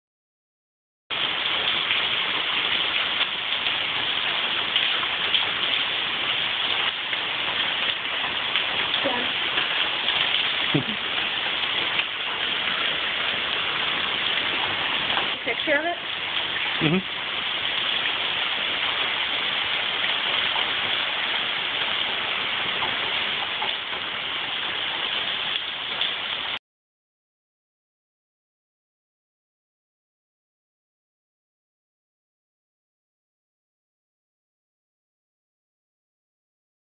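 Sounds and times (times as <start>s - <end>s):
hail and rain on concrete: 1.1s - 26.6s.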